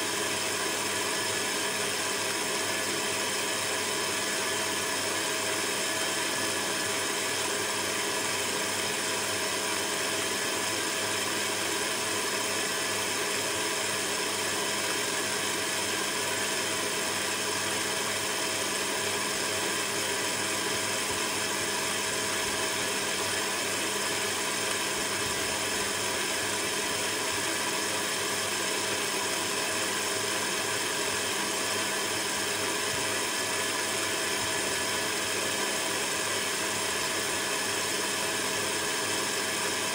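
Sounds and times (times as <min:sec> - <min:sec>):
electric stand mixer running: 0:00.0 - 0:39.9.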